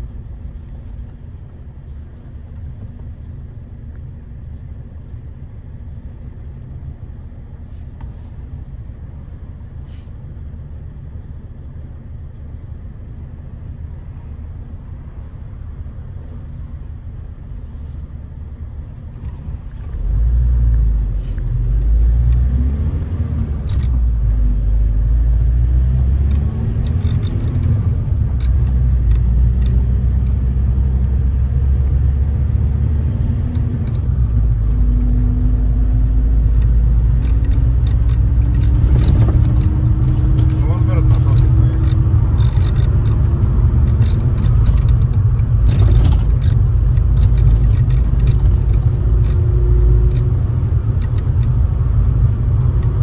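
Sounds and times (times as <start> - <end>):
minibus engine accelerating: 0.0 - 53.0
light cabin rattles: 33.6 - 53.0.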